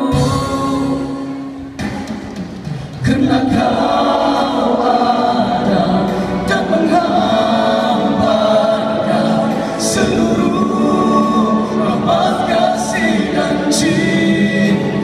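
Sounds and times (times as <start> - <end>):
men singing a cappella harmony: 3.0 - 15.0.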